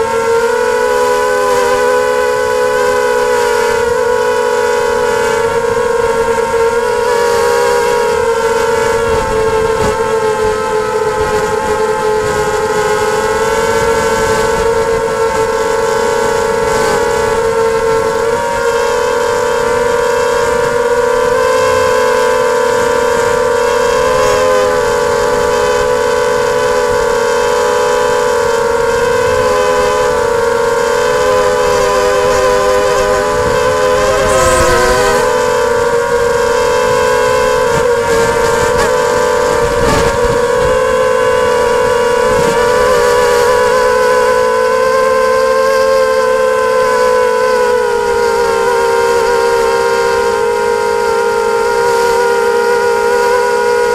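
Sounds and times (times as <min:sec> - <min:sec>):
drone motors whining: 0:31.5 - 0:36.4.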